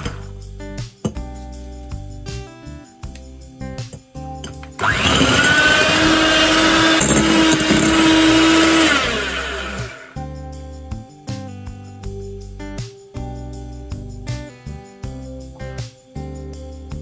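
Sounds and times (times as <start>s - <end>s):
electric hand mixer running: 0.0s - 0.2s, 4.8s - 10.2s.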